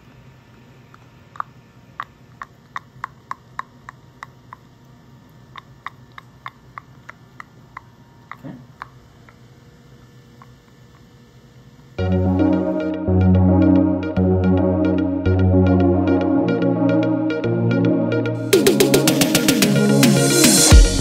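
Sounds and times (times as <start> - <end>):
denture teeth clicking together: 0.9 - 4.7, 5.5 - 9.4
electronic music: 12.0 - 21.0.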